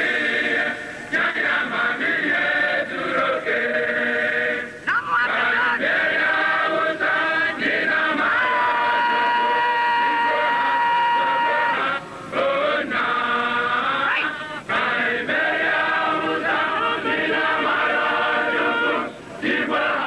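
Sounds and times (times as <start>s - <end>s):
group of voices chanting: 0.0s - 20.0s.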